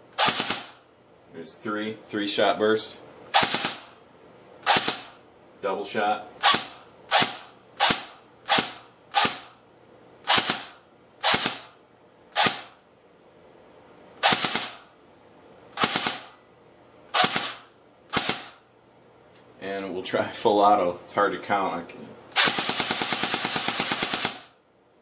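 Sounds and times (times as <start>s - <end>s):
airsoft rifle sharp cracks: 0.1s - 0.8s, 3.4s - 4.0s, 4.6s - 5.2s, 6.4s - 9.5s, 10.3s - 11.8s, 12.4s - 12.8s, 14.2s - 14.9s, 15.8s - 16.4s, 17.1s - 18.6s, 22.4s - 24.6s.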